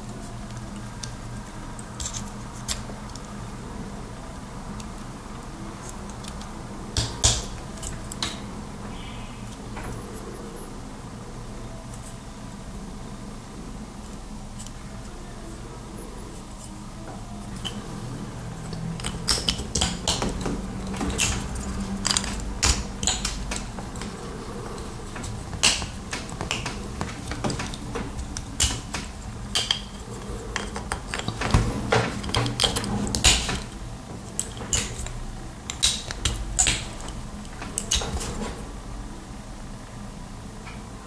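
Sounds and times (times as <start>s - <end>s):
small plastic parts clicking: 1.8s - 3.3s, 18.6s - 24.1s, 25.1s - 38.4s.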